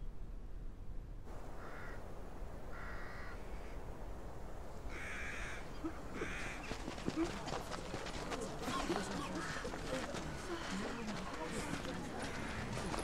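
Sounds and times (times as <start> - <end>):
low background noise: 0.0 - 13.0
crow cawing: 1.6 - 2.0, 2.7 - 3.8, 4.9 - 7.5, 8.6 - 13.0.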